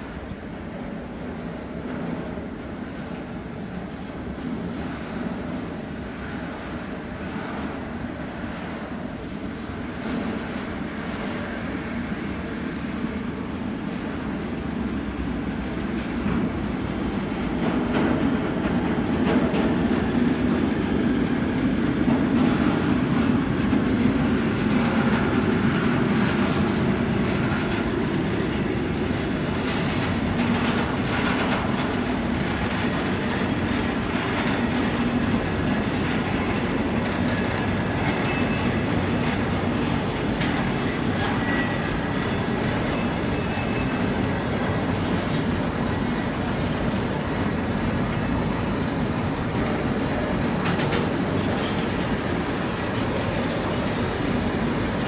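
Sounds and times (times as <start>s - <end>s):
train wheels clattering: 15.7s - 55.0s
faint high brake squeal: 38.1s - 38.9s, 40.9s - 44.4s.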